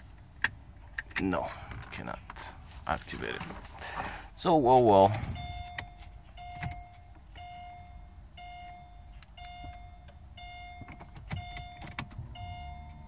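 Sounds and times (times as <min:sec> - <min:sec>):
car warning chime beeping: 0:04.9 - 0:13.0.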